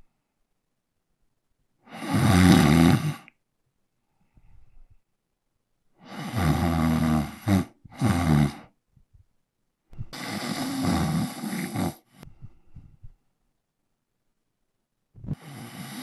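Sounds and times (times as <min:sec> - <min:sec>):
man snoring: 0:01.9 - 0:03.3, 0:06.0 - 0:08.7, 0:10.1 - 0:12.1, 0:15.2 - 0:16.0.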